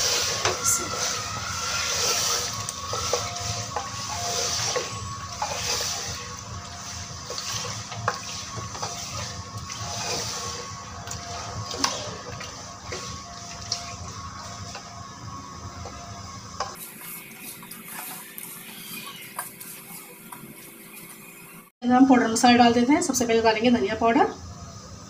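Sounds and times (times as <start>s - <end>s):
spatula scraping pot: 0.0s - 14.9s, 16.6s - 21.5s
food sizzling in hot oil: 0.0s - 21.5s.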